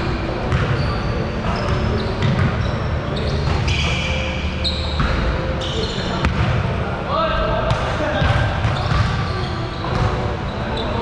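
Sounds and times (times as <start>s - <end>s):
sneaker squeaks: 0.1s - 6.5s, 8.1s - 11.0s
basketballs bouncing on hardwood: 7.7s - 9.2s, 9.8s - 10.3s.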